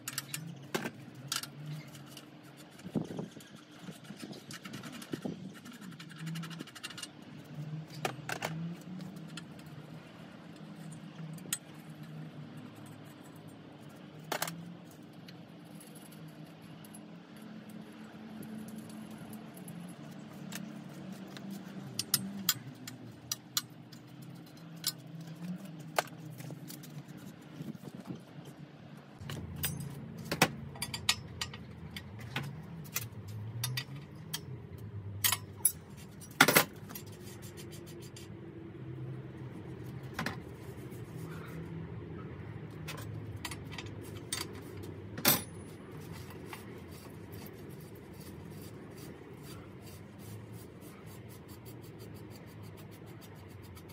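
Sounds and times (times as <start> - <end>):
metal bicycle parts clinking: 29.2 - 34.5, 35.2 - 37.3, 42.9 - 47.5.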